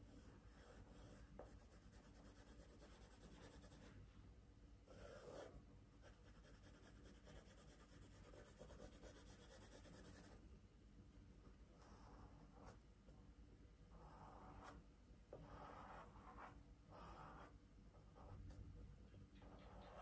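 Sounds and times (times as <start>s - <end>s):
drawing tool scratching on paper: 0.0s - 3.9s, 4.9s - 10.4s, 13.9s - 18.5s, 19.4s - 20.0s.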